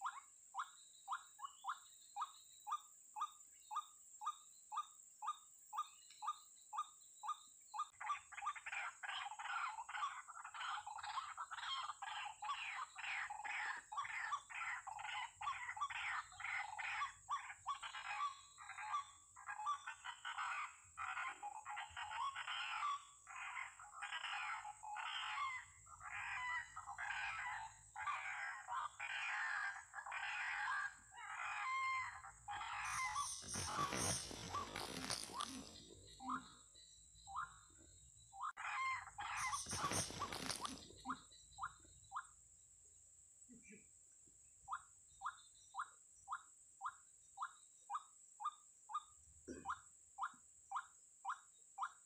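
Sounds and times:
waterhen harsh calls: 28.0s - 35.8s, 38.6s - 40.8s.

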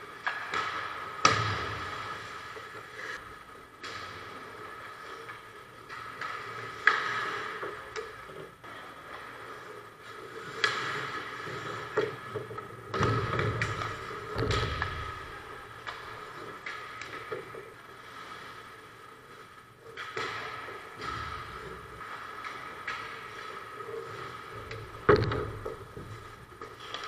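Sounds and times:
hockey sticks and puck clacking: 0.0s - 18.6s, 19.5s - 27.0s
skate blades scraping ice: 0.0s - 27.0s.

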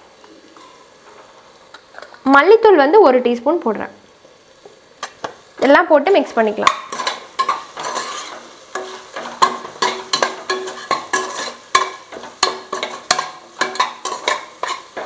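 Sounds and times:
frying sizzle: 0.0s - 15.0s
metal spoon scraping metal pot: 6.9s - 15.0s.

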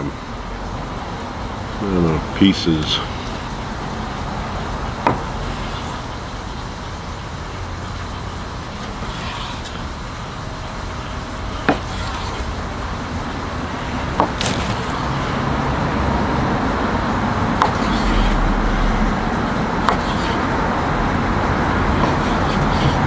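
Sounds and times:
knife slicing meat: 17.6s - 18.4s, 19.8s - 20.5s.

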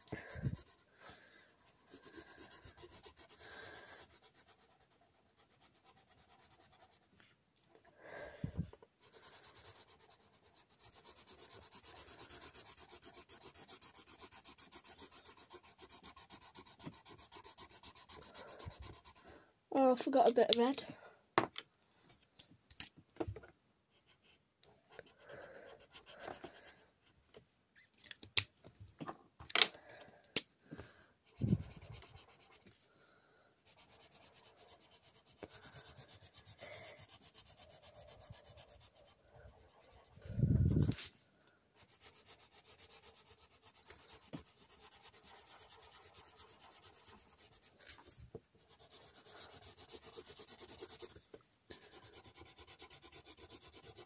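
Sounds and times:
marker rubbing on paper: 0.0s - 7.1s, 8.5s - 19.2s, 31.3s - 32.6s, 33.6s - 41.1s, 41.8s - 54.0s.

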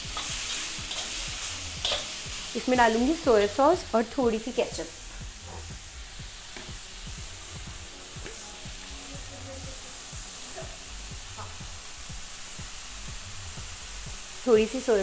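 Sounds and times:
vegetables sizzling in oil: 0.0s - 15.0s
metal spatula scraping pan: 0.1s - 2.5s.

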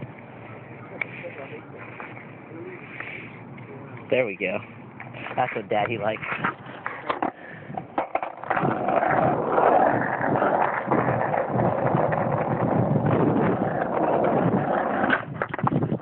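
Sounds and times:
skateboard wheels rolling on asphalt: 4.4s - 16.0s.

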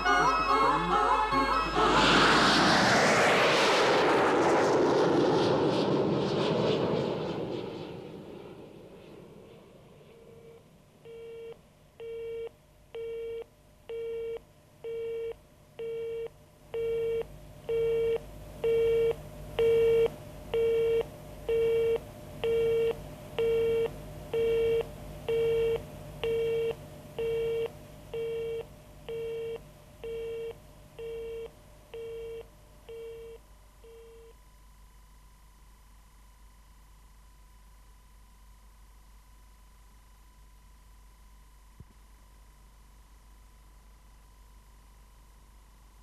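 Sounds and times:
telephone busy tone: 0.0s - 1.9s, 16.8s - 34.3s.

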